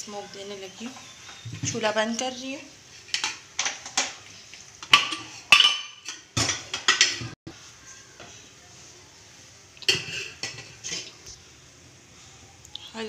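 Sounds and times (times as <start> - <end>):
steel cookware clattering: 3.0 - 4.2, 4.8 - 7.4, 9.9 - 11.2.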